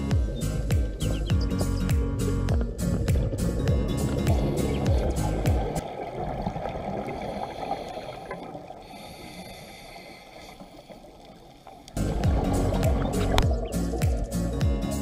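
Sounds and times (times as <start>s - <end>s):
background music: 0.0s - 5.8s, 12.0s - 15.0s
muffled underwater rush: 0.0s - 14.5s
diver exhaling bubbles: 2.8s - 9.7s.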